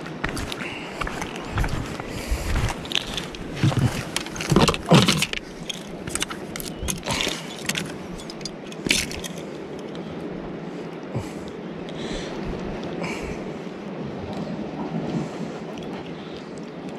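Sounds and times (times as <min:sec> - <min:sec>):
clicks and knocks with rattle: 0:02.9 - 0:09.4.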